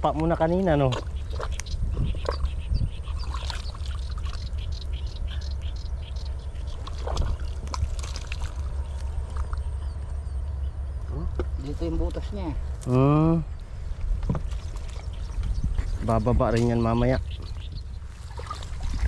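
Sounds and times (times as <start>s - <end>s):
steady low rumble: 0.0s - 19.0s
hands squelching in mud and water: 0.7s - 5.6s, 6.5s - 9.9s, 18.0s - 19.0s.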